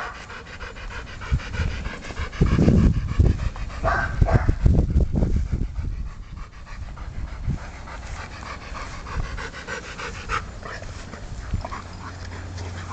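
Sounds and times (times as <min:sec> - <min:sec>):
puppy panting: 0:00.0 - 0:12.9.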